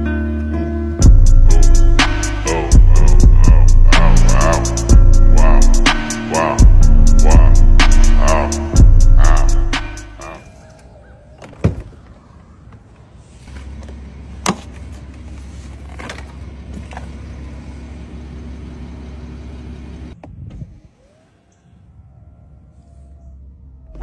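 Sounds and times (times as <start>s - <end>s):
steady low hum: 1.0s - 10.2s.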